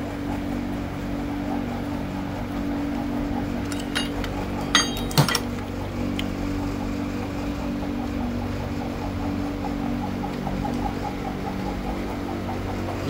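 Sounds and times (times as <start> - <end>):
steady hum: 0.0 - 13.0
metallic clinks: 3.6 - 5.6.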